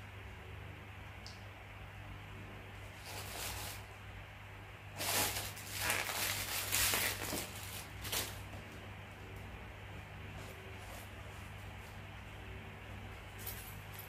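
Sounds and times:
steady low hum: 0.0 - 14.0
plastic wrapping rustling: 2.9 - 3.9, 4.9 - 8.6.

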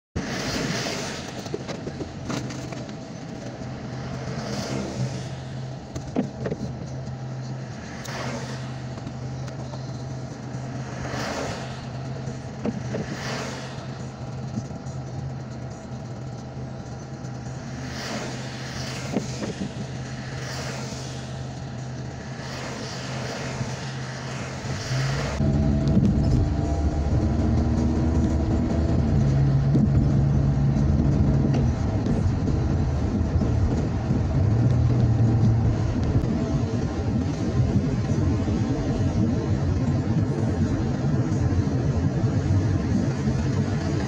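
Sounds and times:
car swishing past: 0.2 - 1.5, 3.8 - 5.8, 7.6 - 9.0, 10.6 - 12.1, 12.7 - 14.0, 17.7 - 26.6
car engine idling hum: 0.2 - 44.0
traffic on wet pavement: 0.2 - 44.0.

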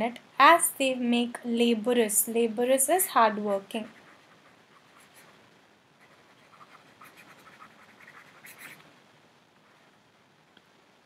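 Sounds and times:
stylus scratching on tablet: 3.8 - 5.4, 6.0 - 8.8.

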